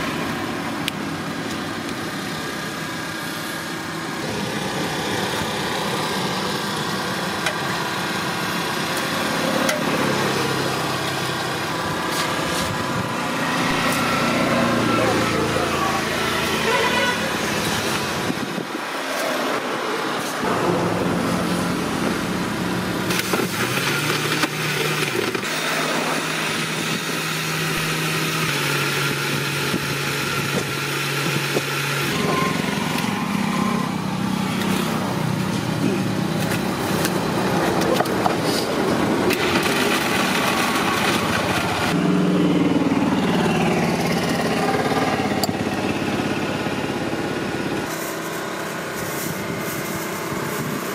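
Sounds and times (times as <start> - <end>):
small motor running: 22.2 - 37.2.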